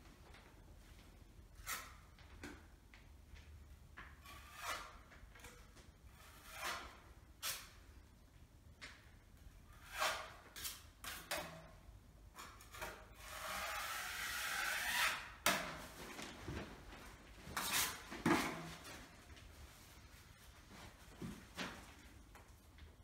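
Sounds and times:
putty knife scraping wall: 4.1 - 7.8, 9.7 - 11.7, 12.4 - 15.7, 17.6 - 18.7.

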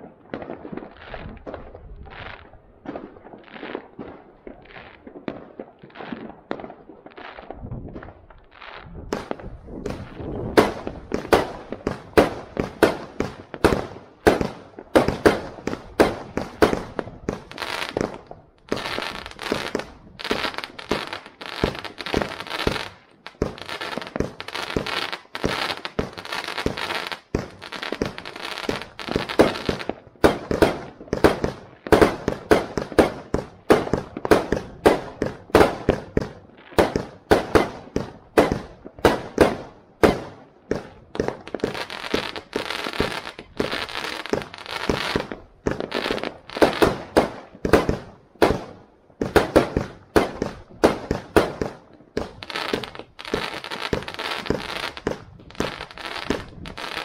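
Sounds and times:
fireworks bangs: 0.0 - 57.0.

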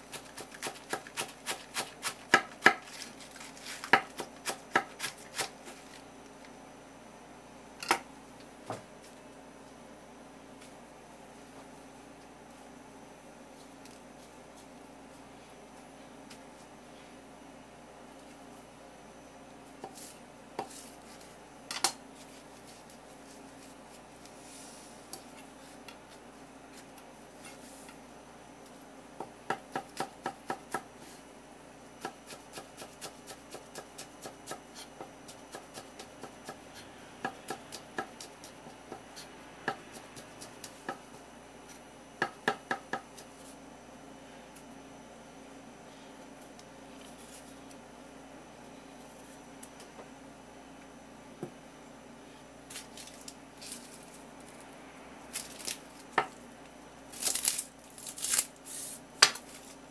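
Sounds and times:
knife chopping on wooden board: 0.1 - 2.9, 3.8 - 5.5.

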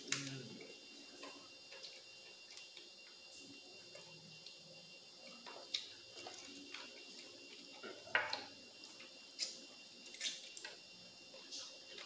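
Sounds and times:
chewing and mouth clicks: 5.2 - 10.8.

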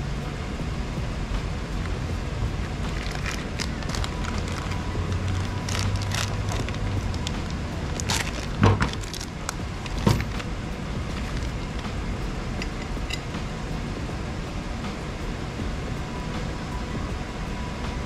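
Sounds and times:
low background noise: 0.0 - 18.0
metal tools clinking and knocking: 9.9 - 10.4, 12.6 - 13.3.

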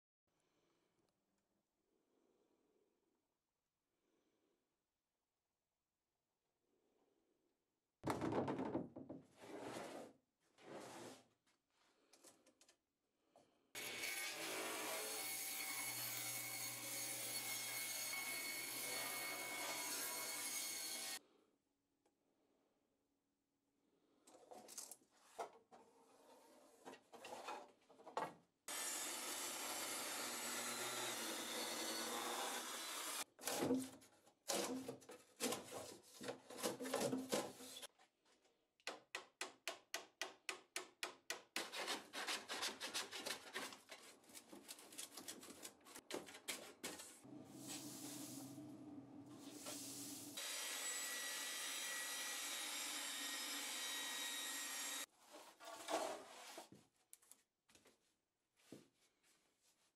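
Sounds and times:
quick repeated scraper strokes: 41.6 - 44.0
scraping and rubbing on wood: 41.6 - 47.2, 55.3 - 56.8.

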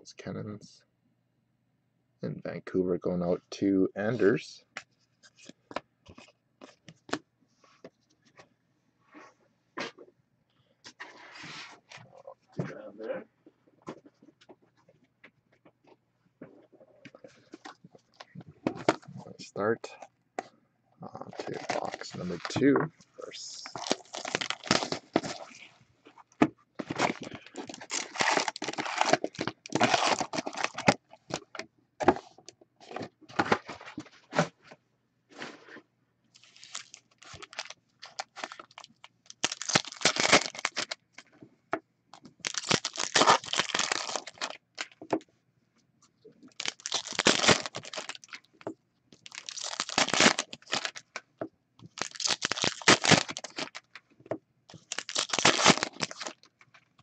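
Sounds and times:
plastic wrapping tearing and crinkling: 23.4 - 25.7, 26.8 - 31.5, 36.4 - 41.0, 42.4 - 45.0, 46.5 - 48.5, 49.2 - 51.2, 51.9 - 53.9, 54.7 - 56.5.

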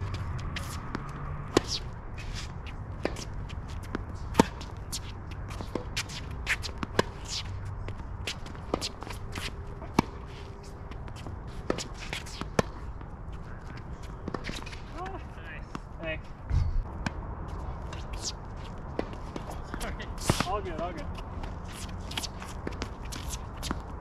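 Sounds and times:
tennis ball bouncing: 0.0 - 2.0, 2.6 - 13.1, 13.7 - 15.1, 17.8 - 24.0
footsteps shuffling on court: 0.0 - 24.0
racket striking tennis ball: 0.3 - 7.5, 8.2 - 12.9.

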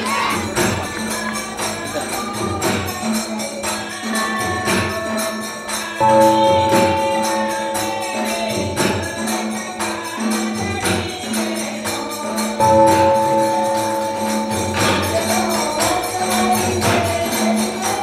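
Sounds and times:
jingling hand percussion: 0.0 - 18.0
long held notes: 6.0 - 9.8, 12.6 - 15.9.

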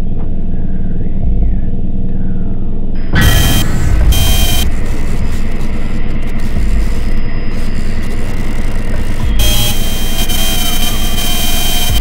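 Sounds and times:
deep throbs: 0.0 - 12.0
low rumbling drone: 0.0 - 12.0.

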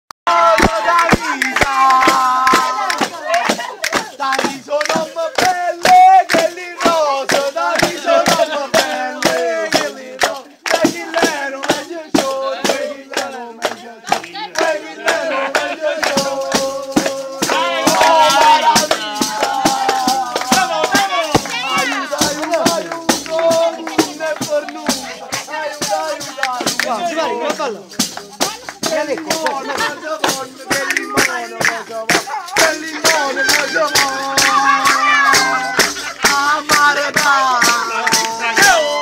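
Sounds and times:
person singing folk song: 0.3 - 39.0
sharp percussion hits: 15.0 - 38.9.

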